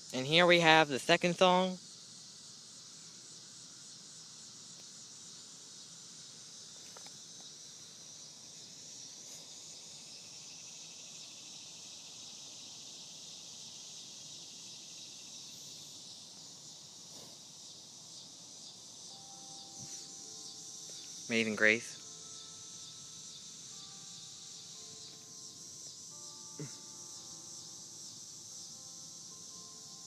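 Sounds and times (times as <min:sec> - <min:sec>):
insect chorus buzzing: 0:00.0 - 0:30.0.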